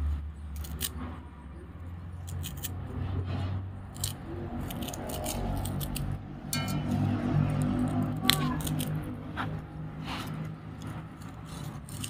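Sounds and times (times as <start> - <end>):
low rumble: 4.3 - 11.2.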